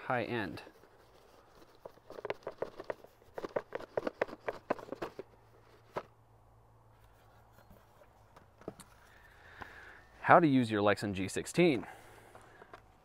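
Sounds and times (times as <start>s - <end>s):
cardboard box being opened: 0.9s - 6.1s.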